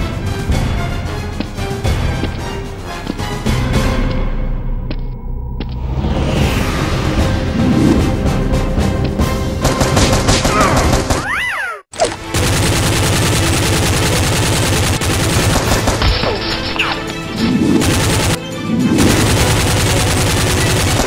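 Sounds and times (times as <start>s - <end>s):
automatic gunfire sound effects: 19.0s - 21.0s.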